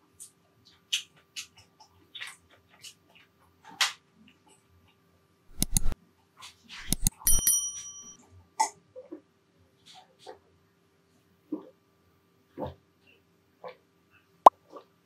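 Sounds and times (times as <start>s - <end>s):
ringing clink: 6.9s - 8.2s.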